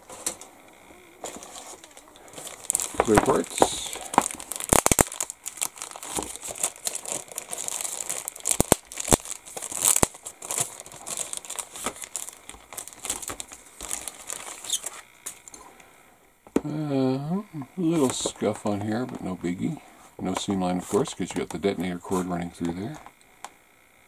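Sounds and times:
plastic bag crinkling: 1.2s - 15.6s.

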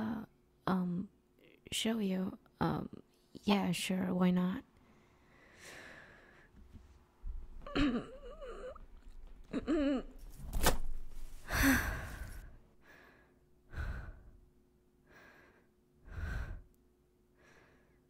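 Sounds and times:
woman breathing hard: 4.8s - 6.6s, 11.4s - 16.8s, 17.4s - 18.0s
woman grunting: 7.6s - 8.8s.

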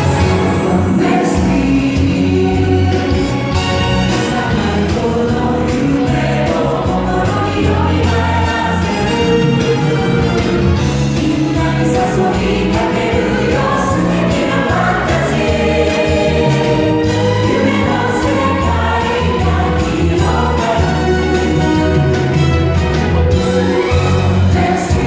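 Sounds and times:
chorus singing stage-show music: 0.0s - 25.0s.

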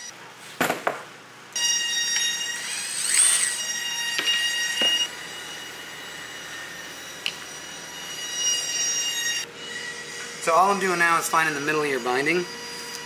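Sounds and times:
high-pitched squealing whine: 1.6s - 13.0s.

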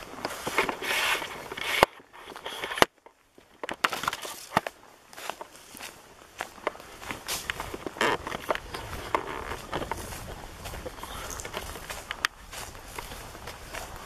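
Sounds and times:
footsteps crunching on rough ground: 0.0s - 14.0s.

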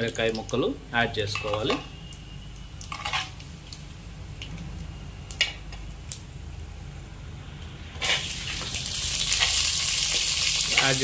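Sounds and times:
onions sizzling in oil: 7.9s - 11.0s
seeds popping in hot oil: 8.0s - 11.0s.

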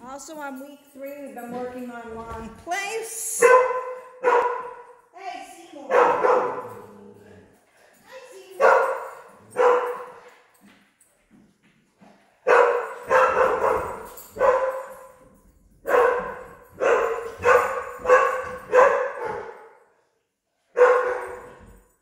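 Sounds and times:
dog barking: 3.4s - 5.0s, 5.9s - 7.0s, 8.6s - 10.2s, 12.4s - 15.2s, 15.8s - 19.8s, 20.7s - 21.6s.

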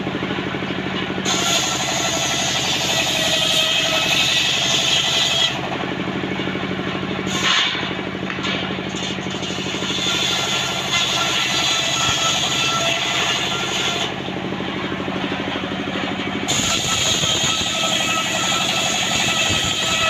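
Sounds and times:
engine beating steadily: 0.0s - 20.0s
saw cutting timber hiss: 1.2s - 5.6s, 7.3s - 7.9s, 8.9s - 14.2s, 16.5s - 20.0s.

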